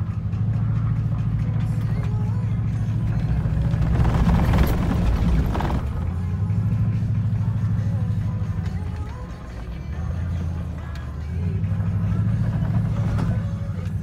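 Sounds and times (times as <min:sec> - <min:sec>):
tyres and engine rumble: 0:00.0 - 0:14.0.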